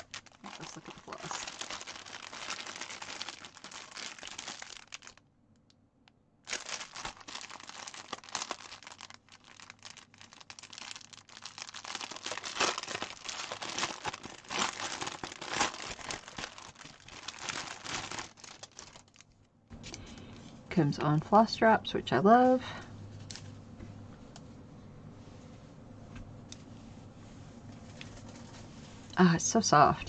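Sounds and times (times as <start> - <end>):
plastic packaging crinkling: 0.0 - 5.2, 6.4 - 20.2.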